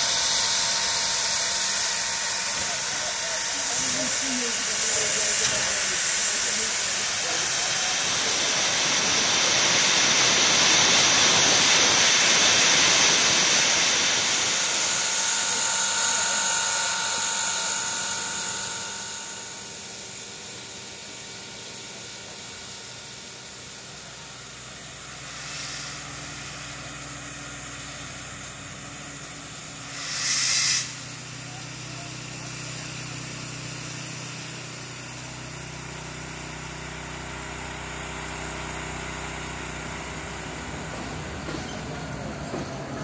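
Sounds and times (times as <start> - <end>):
steam locomotive hissing steam: 0.0 - 43.0.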